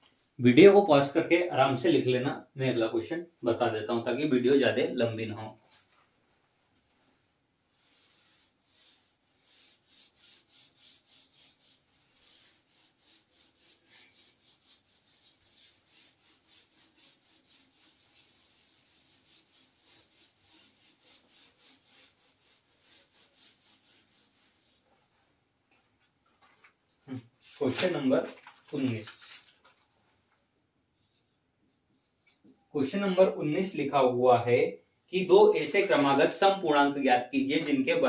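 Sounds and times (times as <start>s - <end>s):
whiteboard wiping strokes: 6.8s - 29.0s, 35.6s - 36.6s.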